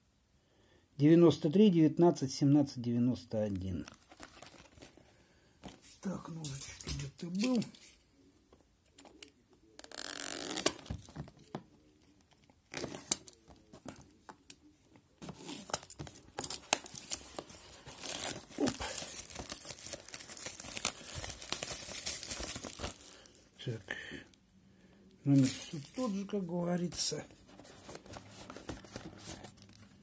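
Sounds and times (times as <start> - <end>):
shrink-wrap crinkling: 15.4 - 23.7, 25.3 - 26.3.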